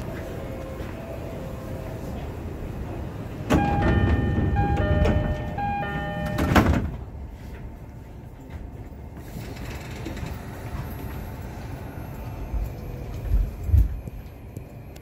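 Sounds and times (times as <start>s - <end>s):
train car rumble: 0.0s - 15.0s
train doors closing with thud: 2.1s - 7.8s.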